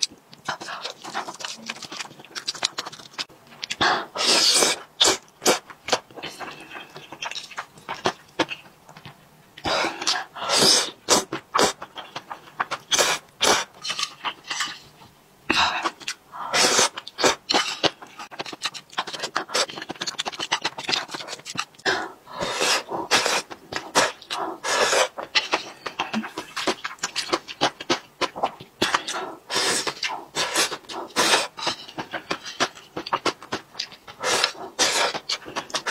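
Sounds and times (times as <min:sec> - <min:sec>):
chewing and lip-smacking: 0:00.0 - 0:03.8, 0:16.9 - 0:21.8, 0:25.1 - 0:29.2, 0:29.8 - 0:35.9
wet noodle slurping: 0:19.0 - 0:27.4, 0:34.1 - 0:35.9.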